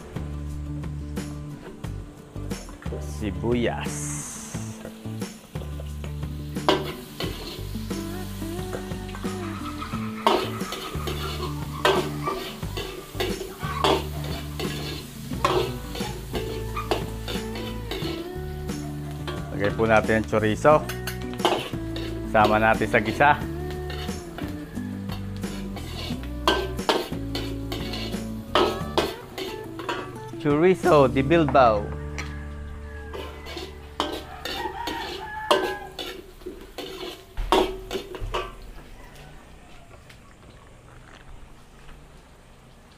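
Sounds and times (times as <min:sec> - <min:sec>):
food sizzling in oil: 0:00.0 - 0:39.2
utensil scraping a pan: 0:06.6 - 0:07.9, 0:09.2 - 0:18.3, 0:20.8 - 0:30.3, 0:32.9 - 0:39.1
utensil knocking against pan: 0:37.4 - 0:38.6.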